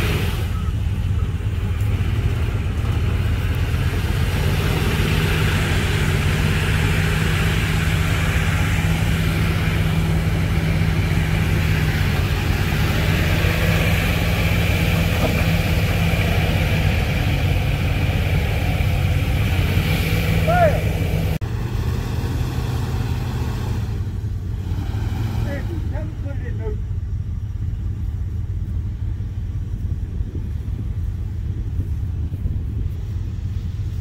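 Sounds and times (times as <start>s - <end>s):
vehicle engine running: 0.0s - 34.0s.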